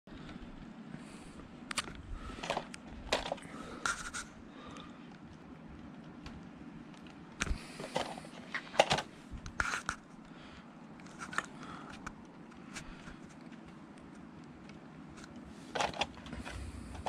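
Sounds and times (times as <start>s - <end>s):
low background noise: 0.1s - 17.0s
camera rustling and knocking: 7.4s - 10.2s.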